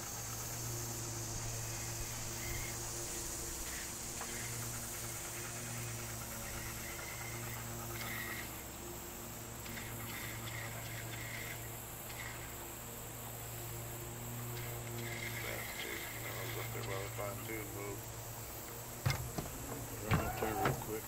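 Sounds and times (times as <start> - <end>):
electric trolling motor hum: 0.0 - 21.0
insects chirping: 0.0 - 21.0.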